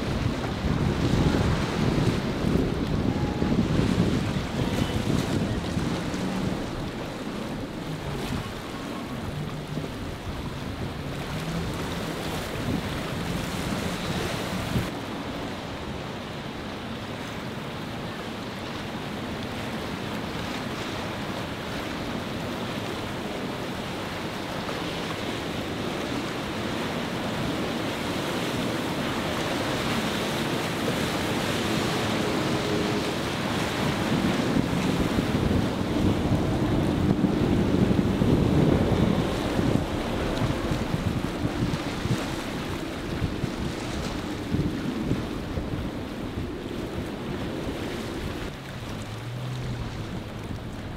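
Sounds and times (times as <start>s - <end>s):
wind buffeting microphone: 0.0s - 15.0s, 21.2s - 50.9s
outboard motors droning: 0.0s - 50.9s
waves breaking: 0.0s - 50.9s.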